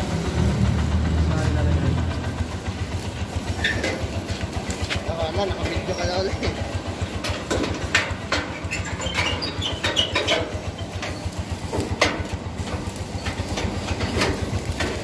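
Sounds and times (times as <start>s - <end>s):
small engine idling: 0.0s - 15.0s
sharp clicks and knocks: 3.5s - 15.0s.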